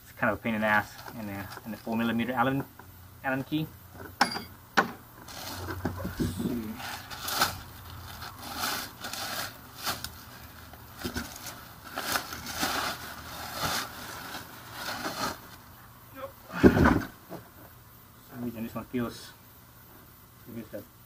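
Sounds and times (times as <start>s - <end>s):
plastic wrapping crinkling: 5.3s - 15.7s.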